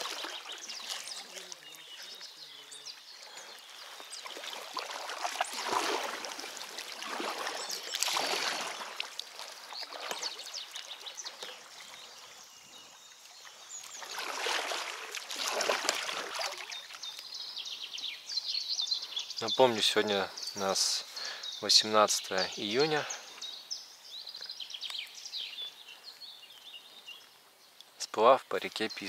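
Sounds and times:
paddle strokes splashing in water: 0:00.0 - 0:02.3, 0:03.5 - 0:17.2.

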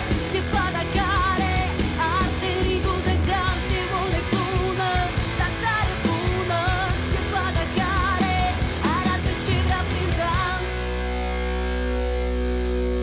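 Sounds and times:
woman singing: 0:00.0 - 0:11.0
distorted electric guitars: 0:00.0 - 0:13.0
drums: 0:00.0 - 0:13.0.

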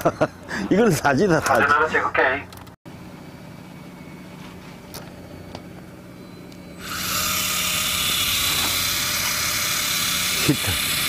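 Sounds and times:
fishing reel motor whirring: 0:06.8 - 0:11.0.

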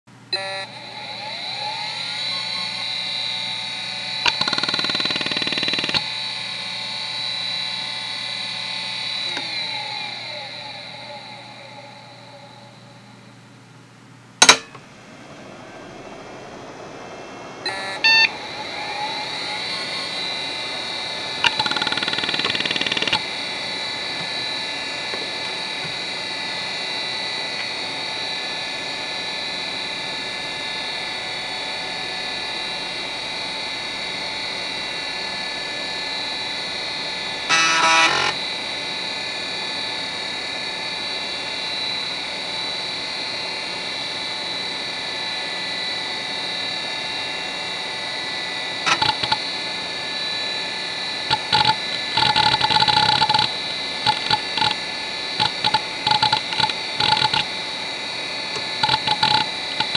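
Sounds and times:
hard drive motor whine: 0:00.1 - 0:59.9
bursts of louder drive noise: 0:00.2 - 0:40.5, 0:48.5 - 0:59.9
power click: 0:04.2 - 0:06.1, 0:14.4 - 0:14.8, 0:21.4 - 0:23.2, 0:48.9 - 0:49.4, 0:51.3 - 0:54.8.

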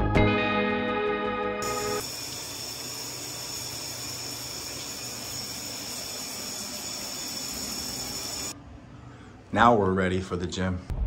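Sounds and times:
room tone hiss: 0:01.6 - 0:09.4.

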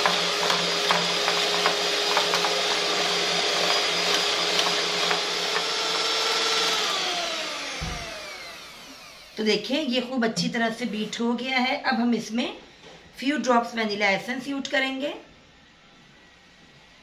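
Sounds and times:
electric hand mixer whisking: 0:00.0 - 0:09.6.

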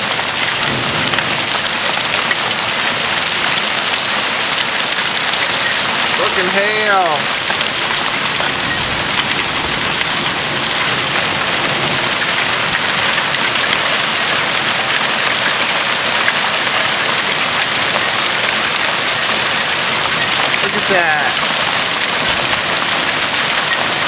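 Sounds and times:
hail and rain falling hard: 0:00.0 - 0:24.0.

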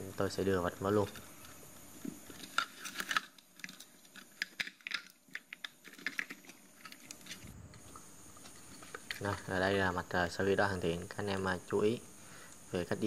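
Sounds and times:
circuit boards clicking and rattling: 0:02.1 - 0:07.4.

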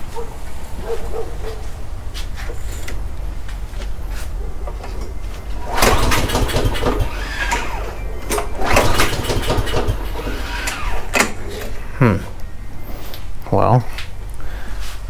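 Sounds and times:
lawn mower pull-start cranking: 0:05.6 - 0:11.9.

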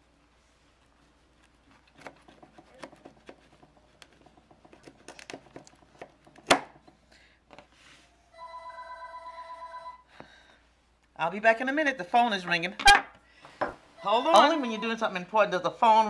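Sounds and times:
knife cutting cake: 0:01.3 - 0:06.2
telephone ringing: 0:08.3 - 0:10.1, 0:14.0 - 0:15.1.

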